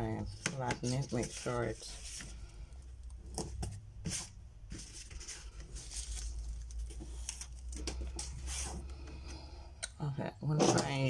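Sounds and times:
paper swishing and rustling: 0.8s - 2.5s, 4.0s - 8.8s.

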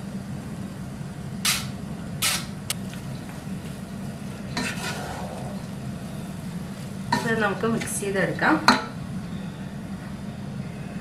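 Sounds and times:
low steady hum: 0.0s - 11.0s
metal spoon scraping strainer: 4.6s - 5.6s.

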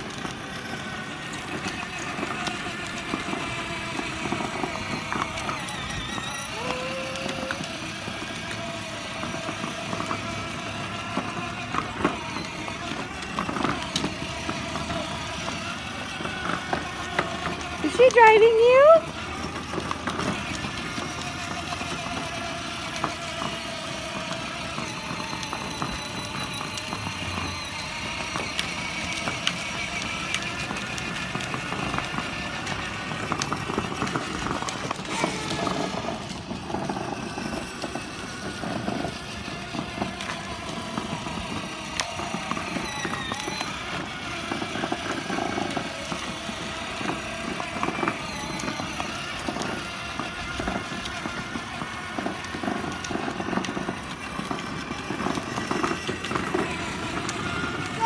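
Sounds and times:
electric toy car motor whining: 0.0s - 58.0s
plastic wheels rolling on asphalt: 0.0s - 58.0s.

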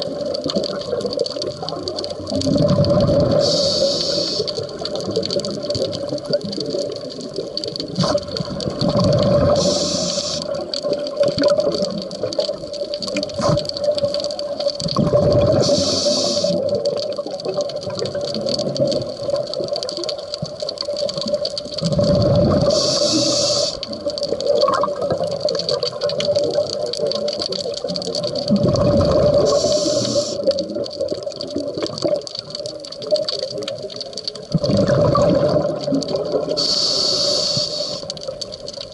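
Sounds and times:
exhaled bubbling: 0.0s - 38.9s
regulator inhale hiss: 3.3s - 4.8s, 9.4s - 10.6s, 15.5s - 16.7s, 22.6s - 23.9s, 29.4s - 30.5s, 36.5s - 38.3s.

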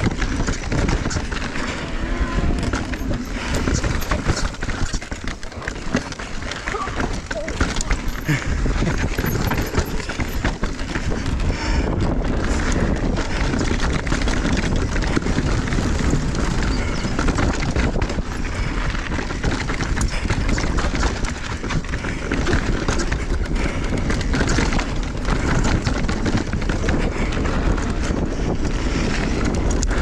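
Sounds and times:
tyres crunching over stones: 0.0s - 11.3s
bike rattling: 0.0s - 30.0s
wind rumble on microphone: 0.0s - 30.0s.

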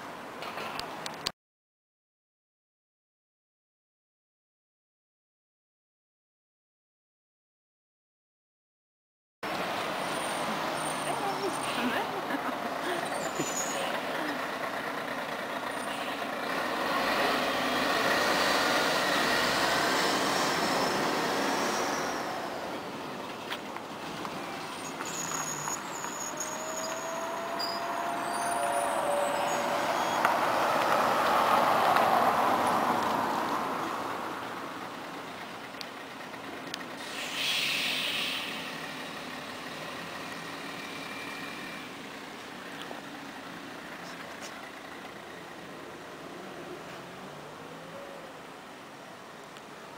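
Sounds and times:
street traffic noise: 0.0s - 1.4s, 9.4s - 49.9s
bus driving off: 9.4s - 49.9s
air hiss: 37.0s - 38.8s.

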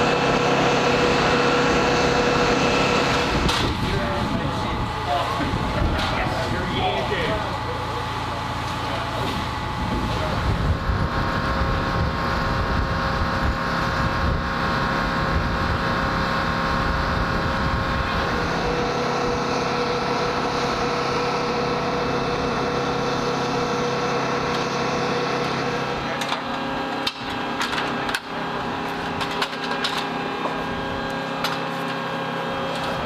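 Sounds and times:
mechanical drone with whine: 0.0s - 33.0s
wind on microphone: 9.4s - 18.8s.

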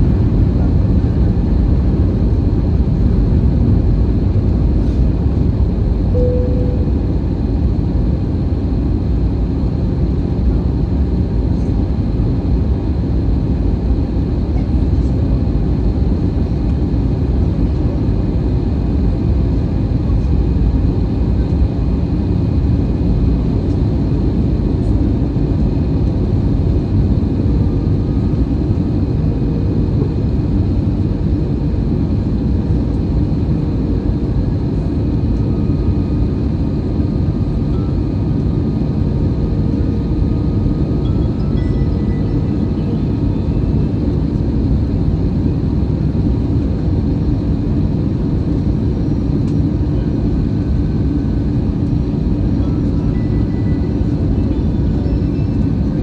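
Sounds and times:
airflow and jet engine rumble: 0.0s - 56.0s
faint steady whines: 0.0s - 56.0s
short tone: 6.1s - 7.2s, 41.1s - 43.0s, 52.9s - 55.6s.

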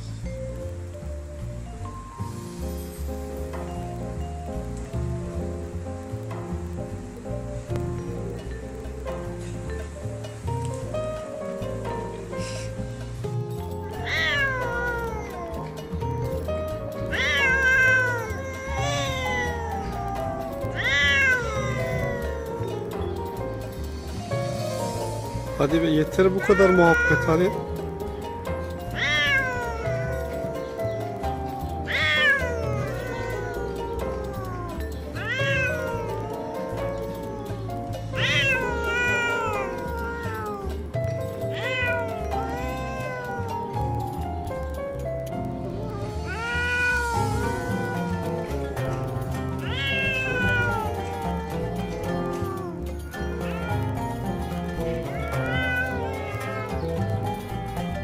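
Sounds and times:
background music: 0.0s - 58.0s
cat yowling: 13.6s - 23.8s, 25.4s - 44.2s, 45.4s - 58.0s.

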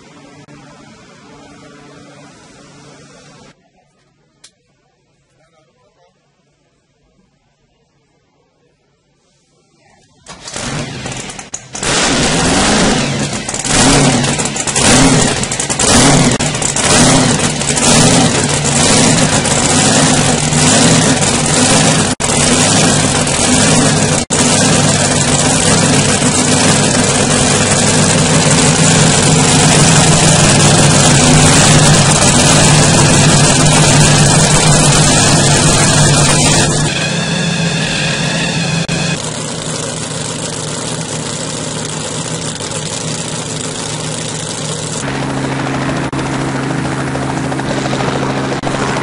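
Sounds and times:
speedboat engine revving and idling: 10.2s - 49.0s.

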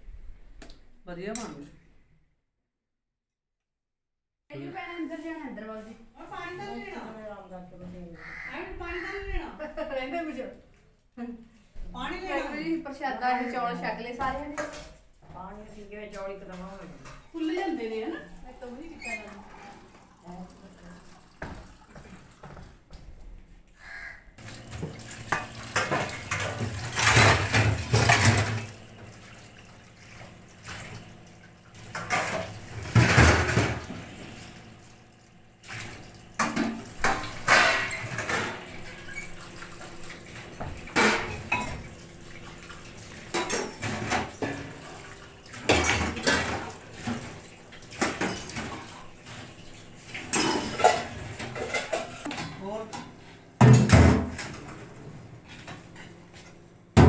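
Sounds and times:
tap water running: 11.8s - 57.0s
steel utensils clattering: 25.3s - 28.7s, 36.4s - 39.4s, 45.6s - 48.9s, 50.2s - 52.6s.

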